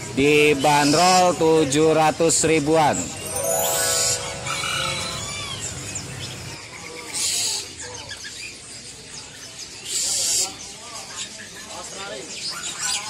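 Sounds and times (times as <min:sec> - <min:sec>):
birds chirping: 0:02.8 - 0:06.6
ringing chime: 0:03.2 - 0:06.0.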